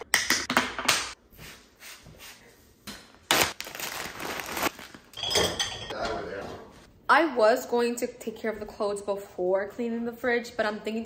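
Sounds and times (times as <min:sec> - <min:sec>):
glass containers and dishes clattering: 0:05.1 - 0:06.2.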